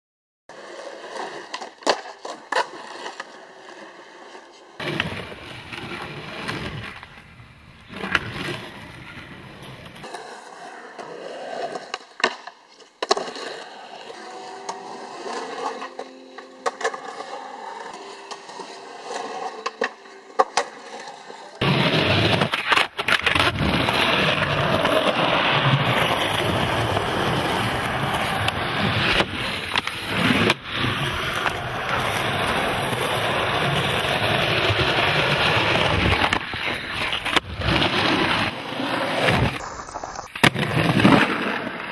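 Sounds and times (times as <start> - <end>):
skateboard clacks: 0.5 - 39.6
skateboard wheels rolling on concrete: 0.5 - 41.9.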